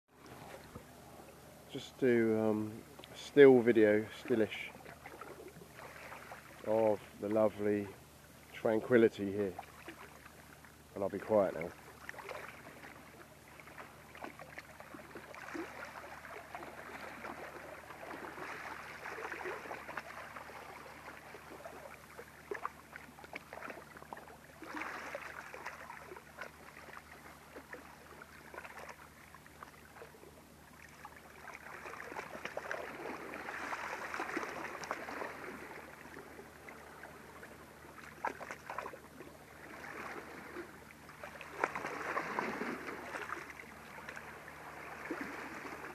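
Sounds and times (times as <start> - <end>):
sea water lapping gently: 0.1 - 45.9
small water drips: 11.6 - 40.2.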